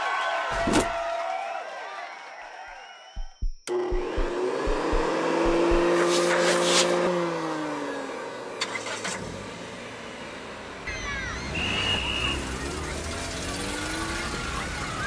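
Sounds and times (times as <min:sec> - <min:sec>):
low thuds: 0:03.2 - 0:06.0.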